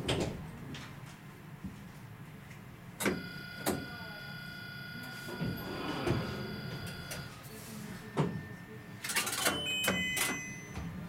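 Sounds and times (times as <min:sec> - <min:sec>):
tram high whine: 0:03.2 - 0:09.0.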